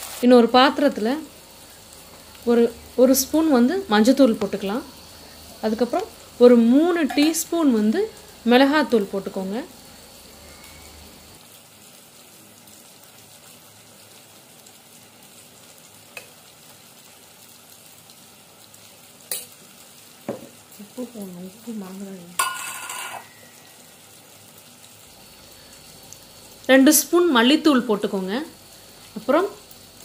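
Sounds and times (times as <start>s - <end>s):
spoon tapping metal bowl: 7.0s - 7.4s, 22.4s - 23.4s.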